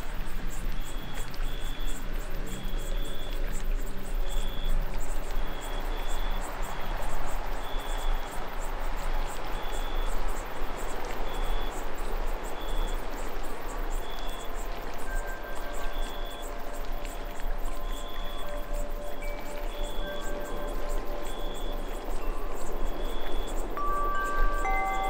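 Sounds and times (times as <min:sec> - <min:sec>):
faint held tones: 0:17.8 - 0:25.0
steady noisy wash: 0:18.5 - 0:25.0
short high chirps: 0:23.8 - 0:25.0.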